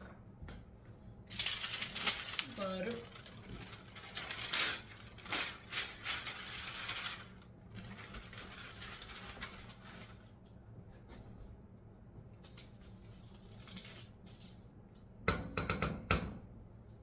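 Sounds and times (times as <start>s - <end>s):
paper crinkling and rustling: 1.3s - 11.3s, 12.4s - 14.8s.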